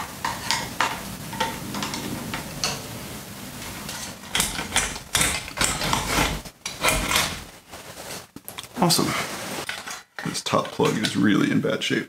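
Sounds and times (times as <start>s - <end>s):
metal box rustling and scraping: 3.6s - 8.4s
sharp metallic clicks and knocks: 3.9s - 7.4s.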